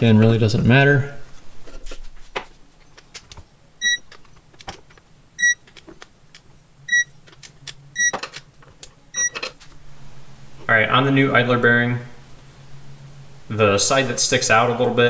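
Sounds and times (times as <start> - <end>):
torque wrench beeping: 9.2 - 9.4.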